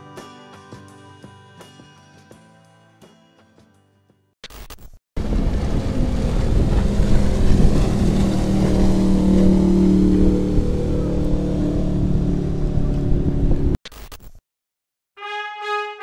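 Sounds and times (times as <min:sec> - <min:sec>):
boat engine running: 0:05.2 - 0:13.8
water noise: 0:05.2 - 0:13.8
wind: 0:05.2 - 0:13.8.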